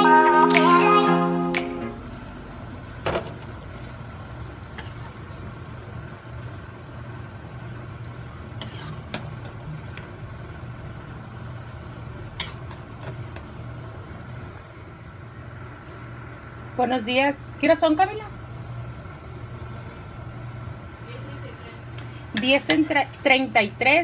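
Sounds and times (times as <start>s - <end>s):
soup simmering in a pot: 2.2s - 21.1s.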